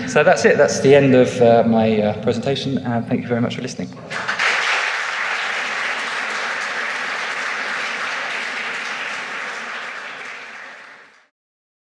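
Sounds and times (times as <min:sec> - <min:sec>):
audience applauding: 0:04.1 - 0:11.3.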